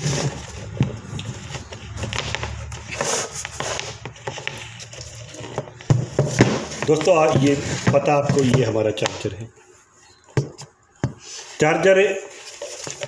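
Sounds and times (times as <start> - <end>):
charger handling knocks and rustles: 0.0 - 9.4.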